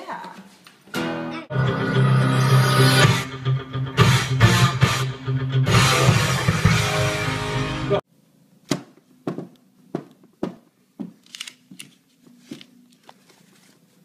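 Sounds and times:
rock music: 1.0 - 8.0.

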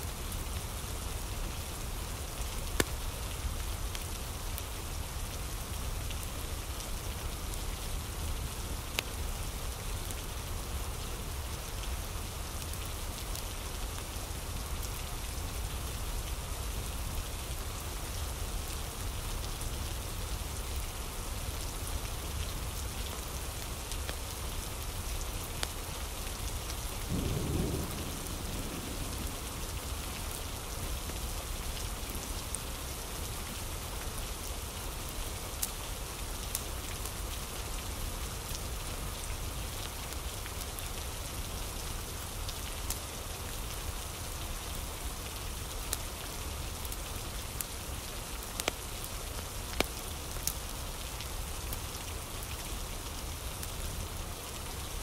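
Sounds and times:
steady rain falling: 0.0 - 55.0
low rumble of thunder: 27.1 - 32.4.

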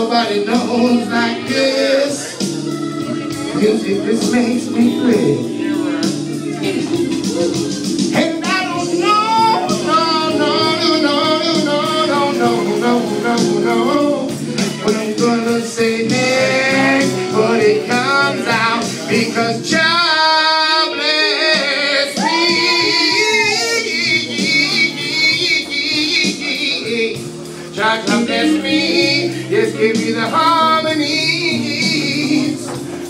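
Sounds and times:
man singing into a microphone: 0.0 - 2.5, 3.2 - 6.1, 8.1 - 33.0
backing music: 0.0 - 33.0.

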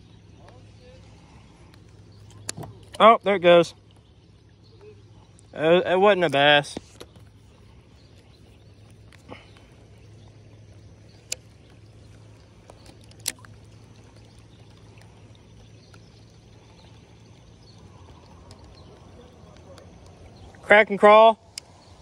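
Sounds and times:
fishing tackle clicks: 11.0 - 15.2, 18.0 - 20.2.

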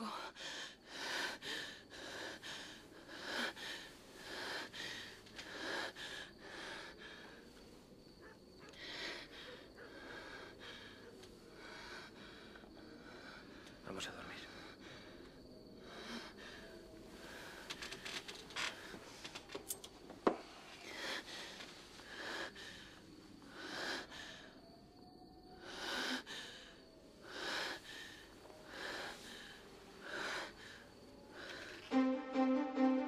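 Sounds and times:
music with low held notes: 31.9 - 33.0.

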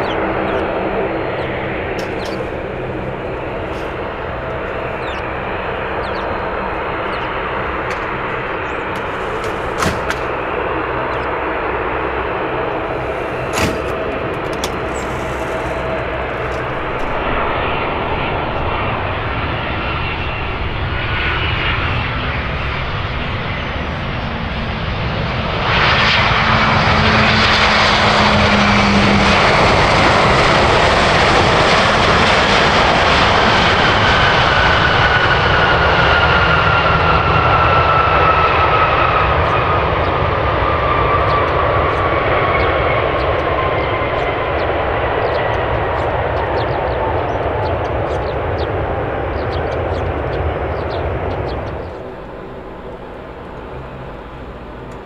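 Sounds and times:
jet engines roaring: 0.0 - 55.0.

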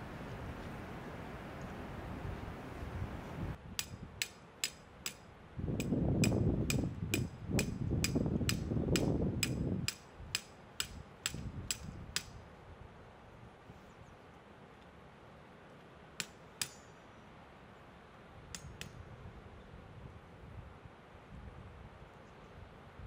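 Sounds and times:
wind rumble: 0.0 - 4.2, 5.4 - 13.0
hammer striking metal: 6.2 - 12.4, 16.2 - 17.0.

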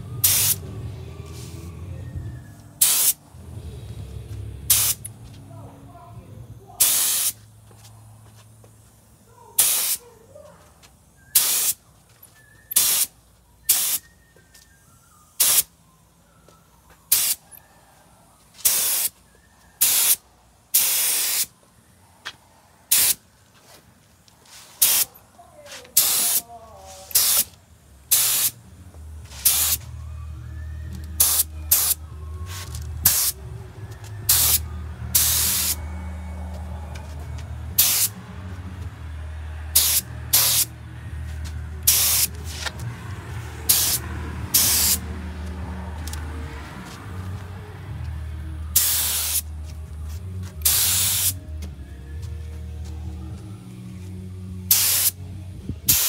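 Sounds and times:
low steady hum: 0.0 - 6.8
spray gun hissing bursts: 0.2 - 0.6, 2.8 - 3.2, 4.7 - 5.0, 6.8 - 7.5, 8.7 - 10.1, 11.3 - 11.8, 12.8 - 13.1, 13.7 - 14.0, 15.4 - 15.7, 17.1 - 17.4, 18.6 - 19.2, 19.8 - 21.5, 22.9 - 23.2, 24.6 - 25.1, 25.9 - 27.5, 28.1 - 28.6, 29.3 - 29.8, 31.2 - 32.0, 33.0 - 33.4, 34.3 - 34.6, 35.2 - 35.8, 37.8 - 38.1, 39.7 - 40.7, 41.8 - 42.6, 43.7 - 45.0, 48.8 - 49.4, 50.6 - 51.4, 54.7 - 55.2.

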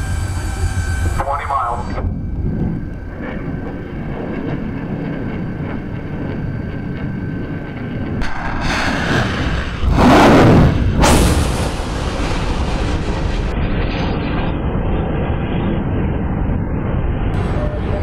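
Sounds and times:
steady rocket rumble: 0.0 - 18.0
missile rocket motors blasting: 8.2 - 16.2.

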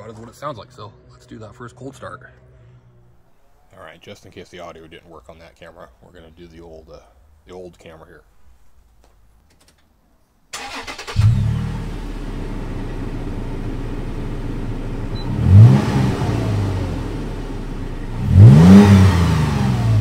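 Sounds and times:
engine idling: 10.6 - 18.6
engine revving: 10.6 - 20.0.

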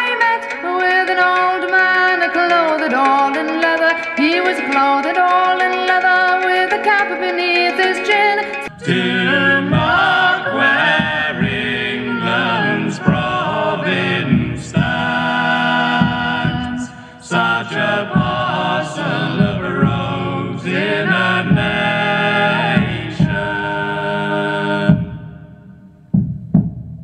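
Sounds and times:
folk song with singing over speaker: 0.0 - 25.5.

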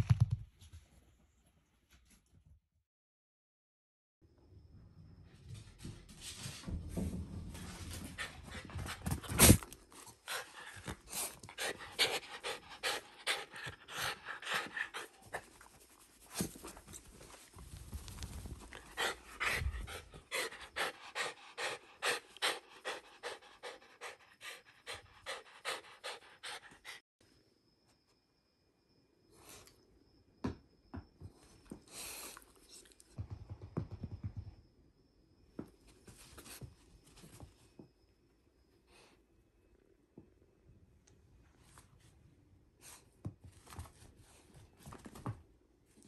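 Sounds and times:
dog panting: 10.2 - 15.6, 18.7 - 27.0.

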